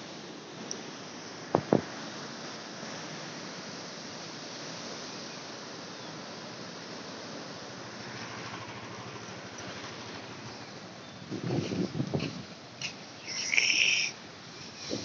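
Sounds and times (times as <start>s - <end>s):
flood water rushing: 12.2s - 15.0s.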